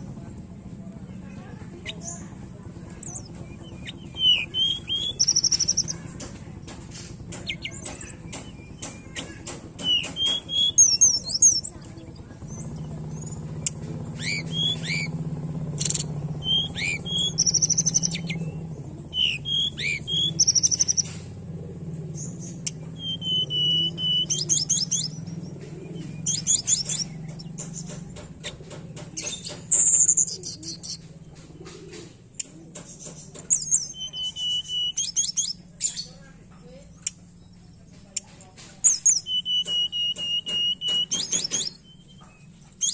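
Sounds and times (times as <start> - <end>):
bird singing whistles and trills: 3.0 - 6.0, 7.4 - 11.9, 12.5 - 15.2, 15.8 - 21.2, 22.1 - 28.6, 29.2 - 31.0, 33.0 - 36.2, 38.8 - 42.9.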